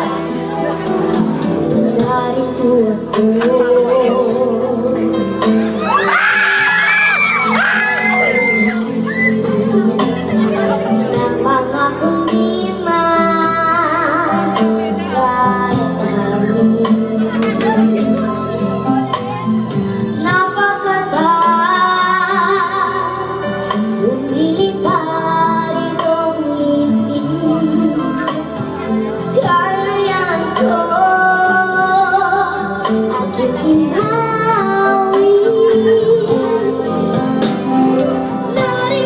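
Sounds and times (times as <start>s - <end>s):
child singing: 0.0s - 18.3s, 20.2s - 37.6s, 38.3s - 39.0s
backing music: 0.0s - 39.0s.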